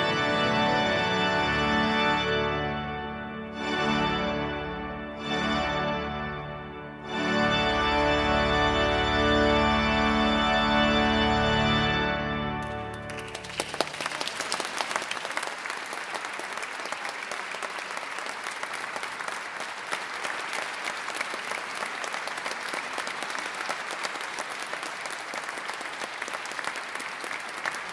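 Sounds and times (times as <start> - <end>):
organ chord ringing: 0.0 - 14.0
audience applauding: 12.6 - 27.9.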